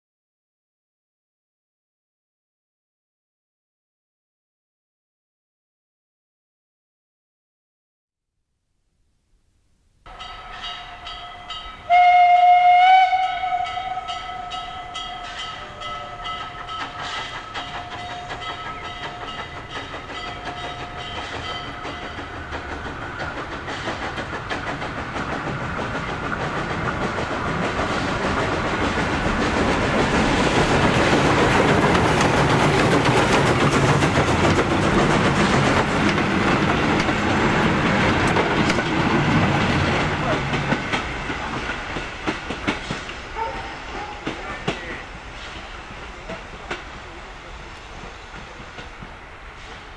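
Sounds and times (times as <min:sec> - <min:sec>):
steam locomotive whistle: 0:10.1 - 0:19.7, 0:43.2 - 0:44.4
steam train running past: 0:10.1 - 0:49.9.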